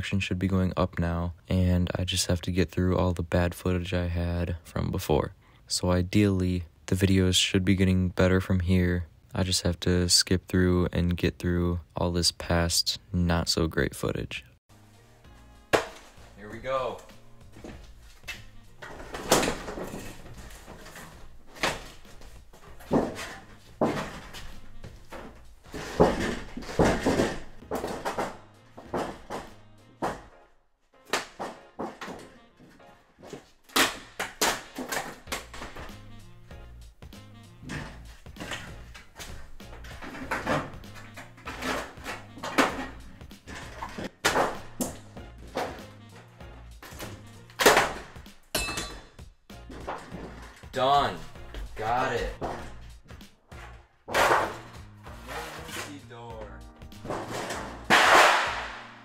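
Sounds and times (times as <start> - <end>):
background music: 0.0 - 59.0
sheet metal bending and crackling: 15.9 - 30.4, 37.6 - 56.4, 57.0 - 58.9.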